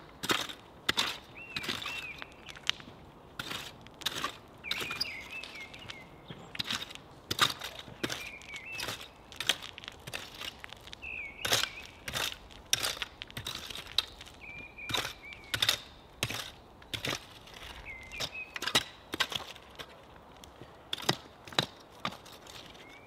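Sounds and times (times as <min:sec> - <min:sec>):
digging tool chopping soil and gravel: 0:00.2 - 0:02.8, 0:03.4 - 0:05.9, 0:06.6 - 0:20.0, 0:20.9 - 0:22.8.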